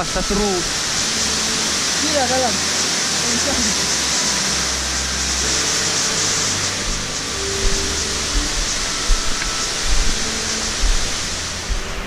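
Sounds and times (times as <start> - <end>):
stream rushing over rock: 0.0 - 12.0
low bumps: 6.7 - 12.0.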